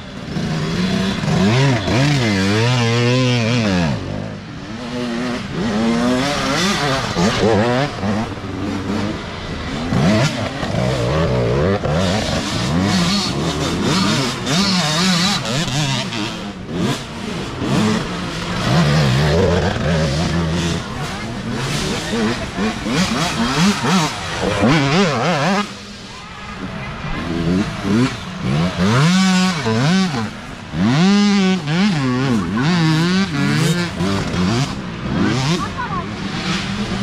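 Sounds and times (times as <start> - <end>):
dirt bikes revving past: 0.0 - 37.0.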